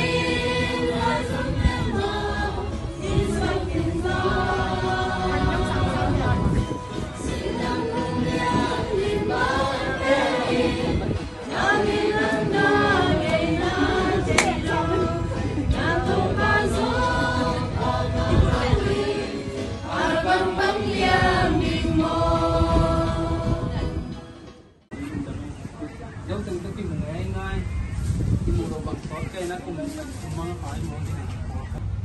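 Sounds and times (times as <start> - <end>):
group of voices singing: 0.0 - 24.2.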